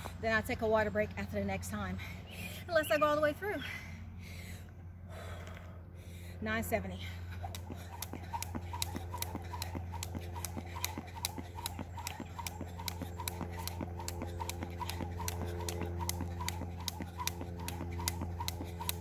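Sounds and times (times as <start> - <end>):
low hum: 3.8 - 19.0
jump rope slapping asphalt: 7.0 - 19.0.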